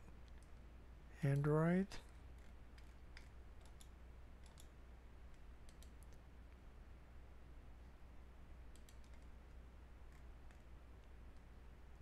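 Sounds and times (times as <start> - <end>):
low steady hum: 0.0 - 12.0
faint computer clicks: 2.4 - 6.2, 8.7 - 9.3.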